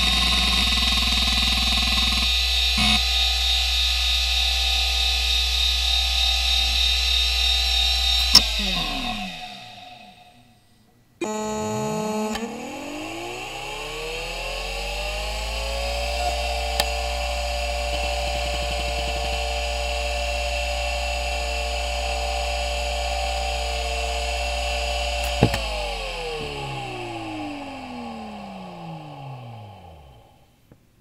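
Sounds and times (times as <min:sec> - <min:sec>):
hard drive motor whine: 0:00.0 - 0:30.5
low hum: 0:00.0 - 0:30.6
brief buzzing tone: 0:02.8 - 0:03.1, 0:11.2 - 0:14.1, 0:16.0 - 0:21.0.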